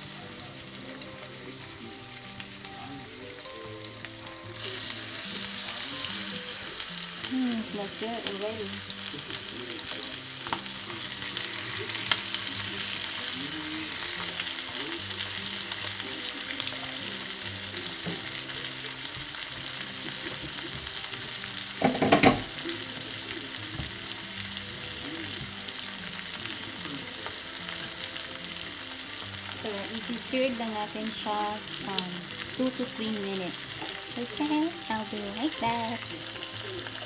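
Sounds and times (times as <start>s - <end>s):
meat sizzling in a skillet: 0.0s - 37.0s.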